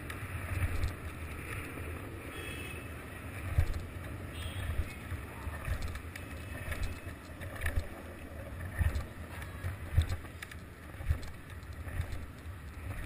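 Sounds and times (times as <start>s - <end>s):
skateboard wheels rolling on asphalt: 0.0s - 13.0s
wind buffeting microphone: 2.9s - 13.0s.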